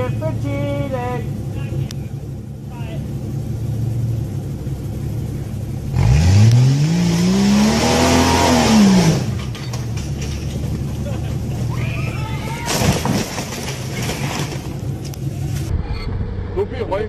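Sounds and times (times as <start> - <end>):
suv engine revving: 0.0 - 11.8
rush of noise: 15.5 - 17.0.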